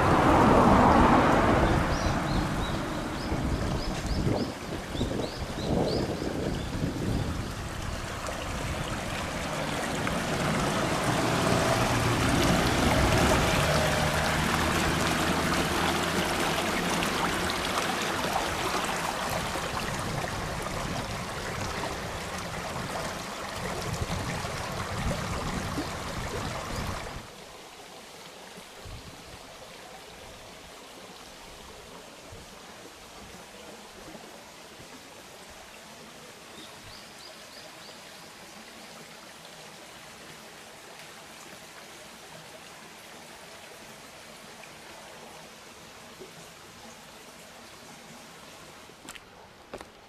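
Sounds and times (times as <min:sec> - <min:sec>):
mountain stream rushing: 0:00.0 - 0:50.0.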